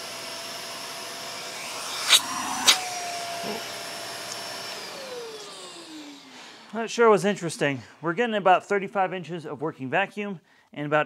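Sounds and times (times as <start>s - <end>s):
vacuum cleaner motor whine: 0.0s - 6.8s.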